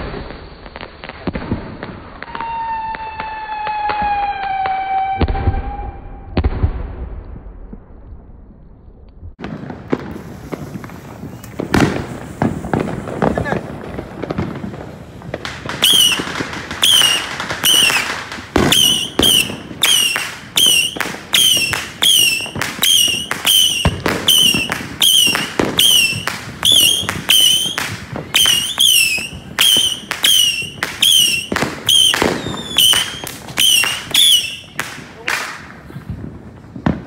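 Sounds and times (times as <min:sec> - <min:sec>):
firework cracks: 0:00.0 - 0:08.6, 0:09.3 - 0:37.0
high wavering whistle: 0:15.8 - 0:18.1, 0:18.7 - 0:34.8.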